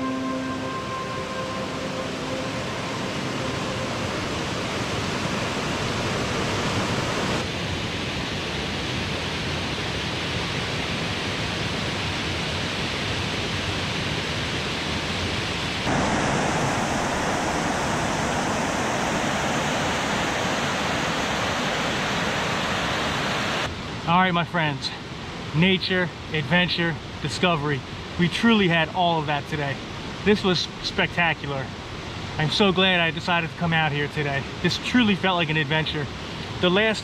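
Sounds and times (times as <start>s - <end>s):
waterfall rushing: 0.0s - 7.4s, 15.8s - 23.7s.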